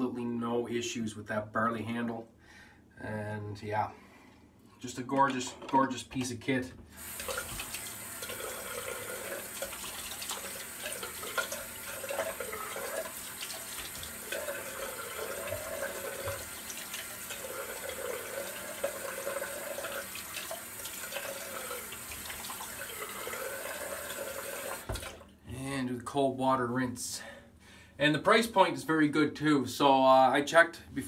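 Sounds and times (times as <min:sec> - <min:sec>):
tap running into a sink: 0:07.1 - 0:25.2.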